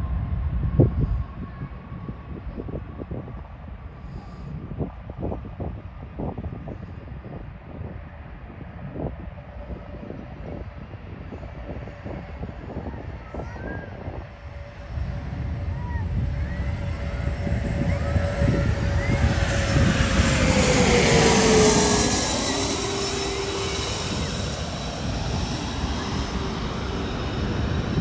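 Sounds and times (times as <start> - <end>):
jet engines at takeoff: 0.0 - 28.0.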